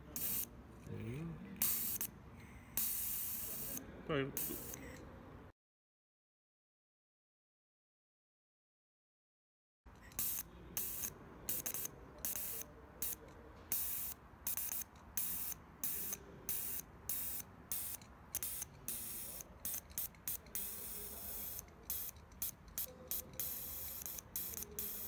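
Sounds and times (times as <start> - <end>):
fuel injector hissing bursts: 0.0 - 0.5, 1.6 - 2.1, 2.8 - 3.8, 4.4 - 4.9, 10.1 - 25.0.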